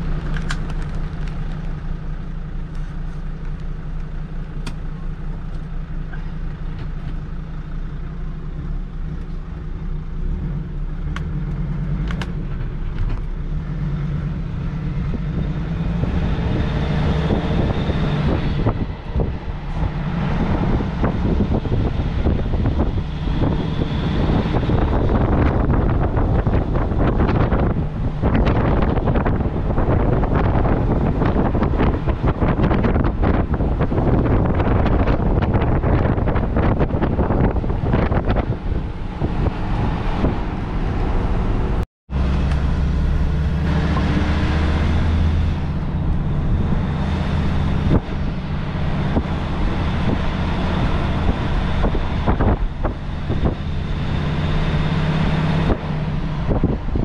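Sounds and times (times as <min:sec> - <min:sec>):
engine droning: 0:00.0 - 0:57.0
vehicle road noise: 0:00.0 - 0:57.0
wind buffeting microphone: 0:12.3 - 0:57.0.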